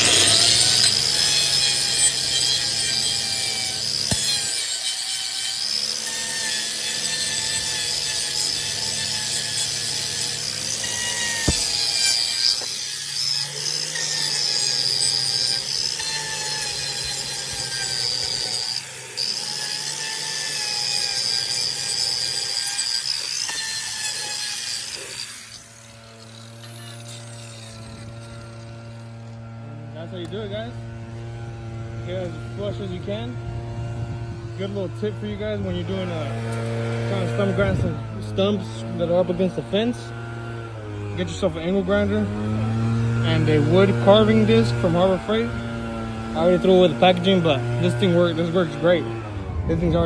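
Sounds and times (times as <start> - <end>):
angle grinder whining: 0.0 - 50.0
wood being ground away: 0.0 - 50.0.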